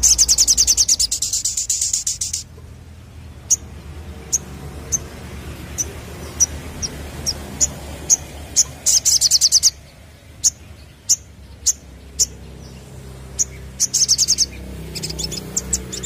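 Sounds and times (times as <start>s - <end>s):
sunbird chirping: 0.0s - 16.0s.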